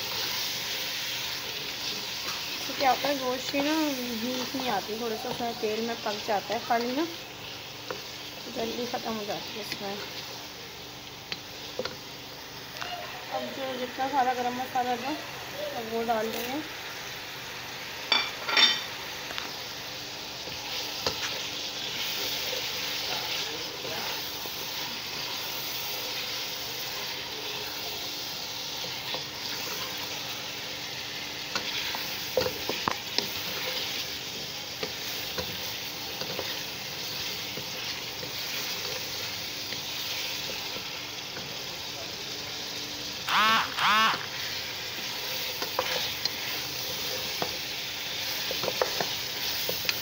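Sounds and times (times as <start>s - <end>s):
meat sizzling in oil: 0.0s - 50.0s
wooden spoon stirring: 31.5s - 41.6s, 45.2s - 50.0s.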